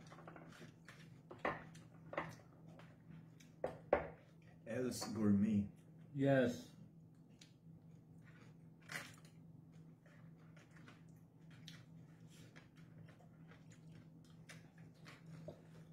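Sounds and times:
quiet chewing: 0.4 - 3.6, 7.0 - 15.9
steady low hum: 0.5 - 15.9.

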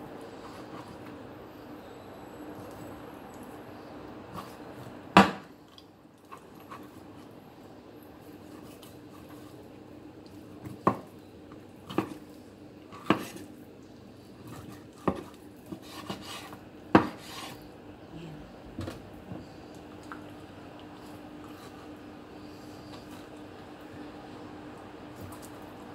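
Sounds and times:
steady low hum: 0.0 - 25.9.

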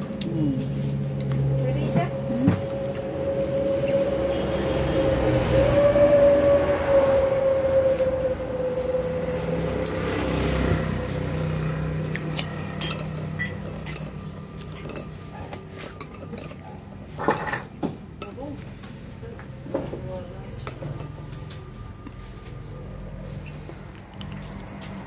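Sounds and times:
droning hum: 0.0 - 17.6
cutlery clinking on ceramic bowls: 12.3 - 18.5.

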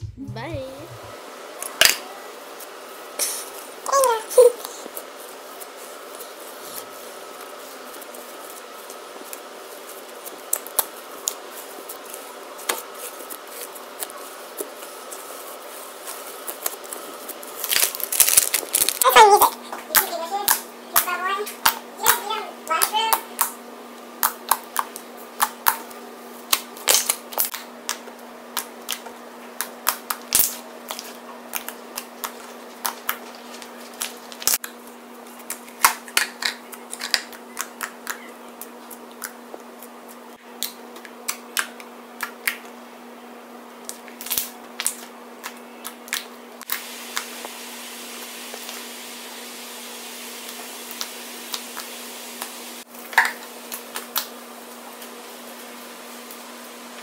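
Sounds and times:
faint low hum: 0.0 - 1.2.

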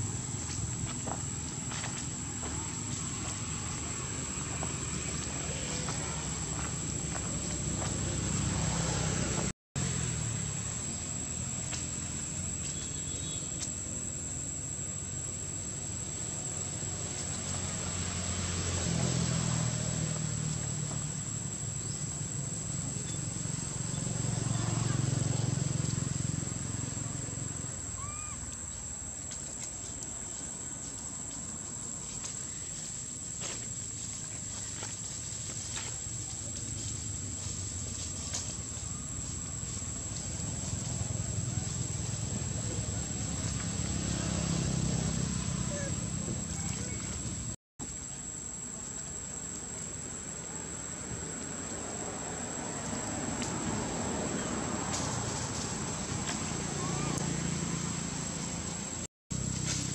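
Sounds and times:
high-pitched insect drone: 9.8 - 30.0
rustles in leaf litter: 16.0 - 47.4, 51.7 - 59.9.

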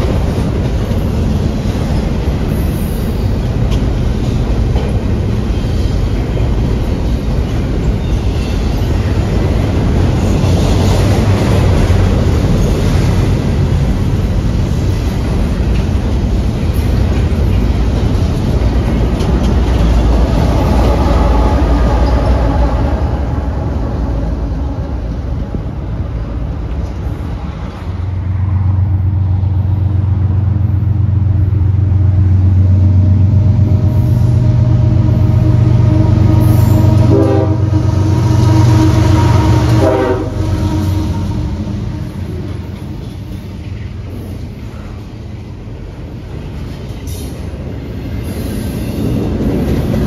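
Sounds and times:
diesel locomotive drone: 0.0 - 50.0
freight cars rumbling: 0.0 - 50.0
train horn blasts: 33.6 - 43.1.

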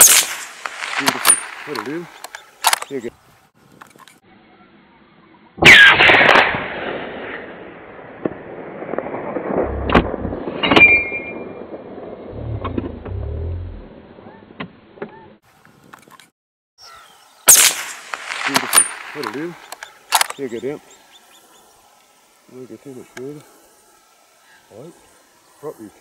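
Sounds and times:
rifle shot: 0.0 - 3.0, 5.6 - 11.8, 17.5 - 20.6
rifle shot echo: 0.0 - 3.0, 5.6 - 11.8, 17.5 - 20.8
rifle handling clicks and thumps: 1.0 - 3.0, 18.4 - 20.4.

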